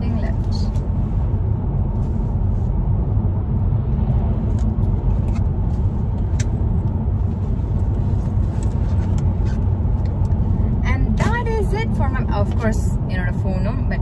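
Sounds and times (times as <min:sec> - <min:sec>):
car cabin road rumble: 0:00.0 - 0:14.0.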